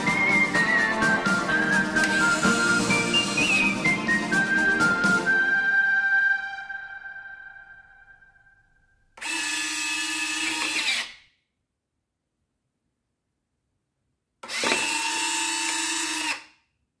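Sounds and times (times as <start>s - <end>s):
small motors whirring: 2.0s - 3.7s.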